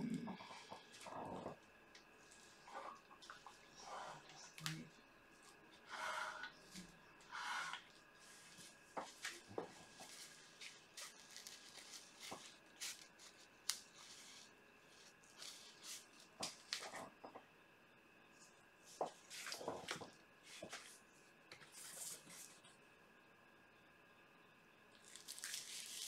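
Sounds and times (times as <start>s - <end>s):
plastic sheeting rustling: 8.2s - 16.9s, 25.0s - 26.0s.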